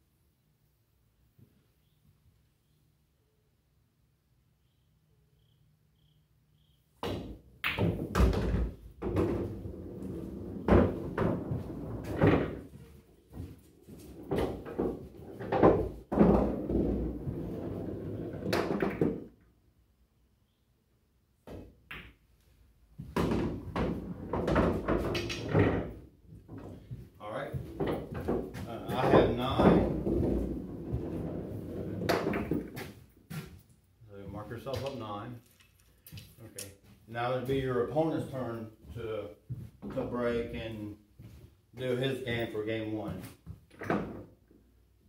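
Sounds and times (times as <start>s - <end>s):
pool balls rolling and clacking: 7.0s - 19.5s, 23.1s - 26.9s, 27.6s - 33.0s, 43.7s - 44.4s.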